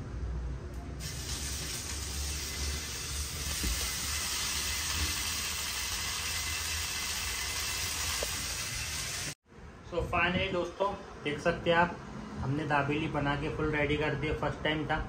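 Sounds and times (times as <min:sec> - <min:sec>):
food sizzling on hot pan: 0:01.0 - 0:09.4.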